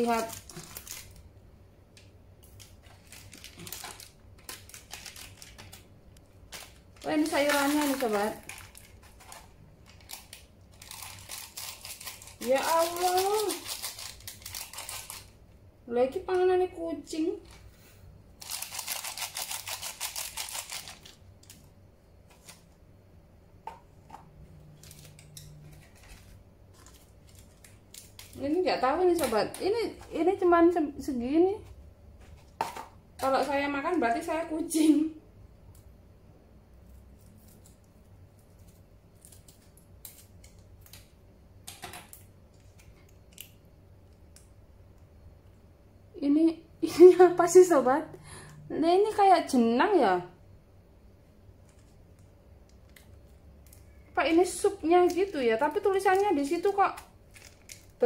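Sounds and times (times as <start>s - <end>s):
scissors cutting plastic: 0.0s - 1.2s, 2.4s - 5.9s, 6.5s - 15.4s, 18.4s - 21.6s, 24.7s - 29.8s, 37.2s - 41.1s, 55.0s - 58.0s
plastic food packets crinkling: 0.0s - 15.5s, 18.4s - 22.9s, 24.0s - 30.4s, 51.6s - 58.0s.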